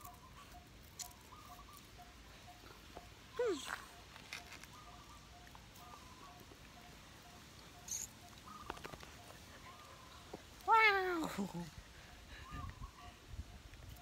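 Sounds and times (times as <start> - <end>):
faint high chirps: 0.0 - 10.4.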